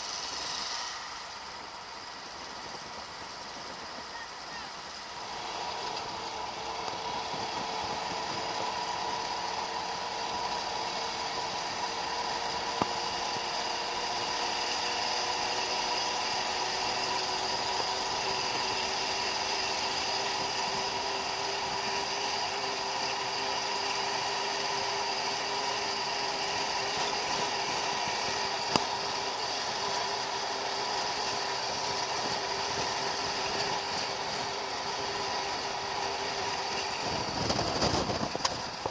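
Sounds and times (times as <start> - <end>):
steady whine: 0.0 - 38.9
truck engine running: 0.0 - 38.9.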